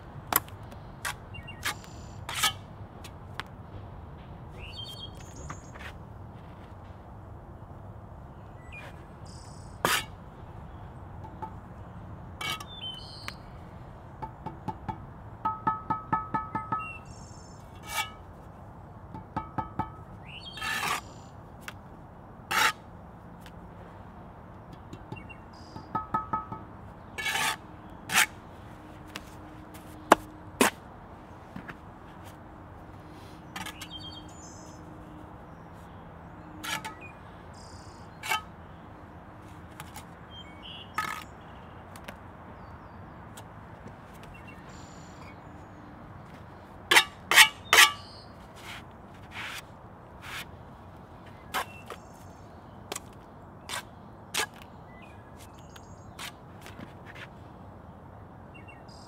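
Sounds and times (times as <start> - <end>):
trowel knocking against bricks: 11.2 - 11.6, 14.2 - 17.0, 19.1 - 21.0, 24.7 - 28.3
trowel scraping mortar: 27.2 - 28.4.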